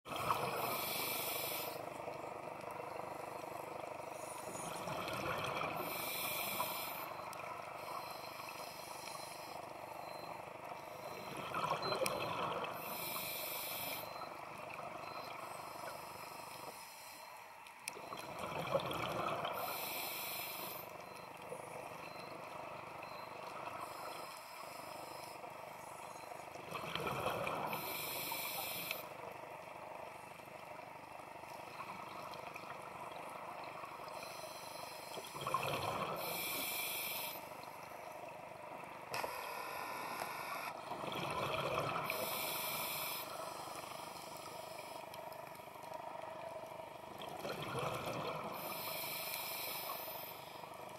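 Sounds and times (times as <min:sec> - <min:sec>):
hiss of inhaled air: 0:00.6 - 0:01.8, 0:05.8 - 0:07.0, 0:36.2 - 0:37.4, 0:42.1 - 0:45.0, 0:48.6 - 0:50.5.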